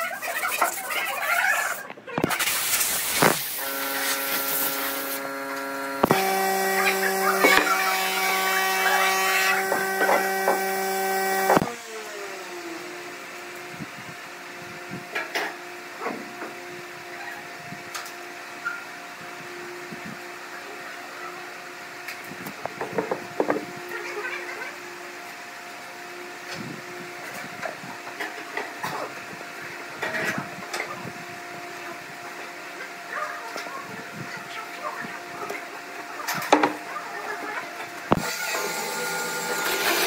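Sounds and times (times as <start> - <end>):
power tool motor running: 2.2 - 13.8, 37.5 - 40.0.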